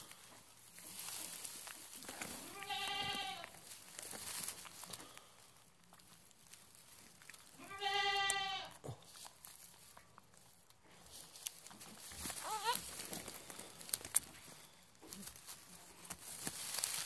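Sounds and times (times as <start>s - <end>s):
goat bleating: 2.4s - 3.5s, 7.6s - 8.8s, 12.4s - 12.9s.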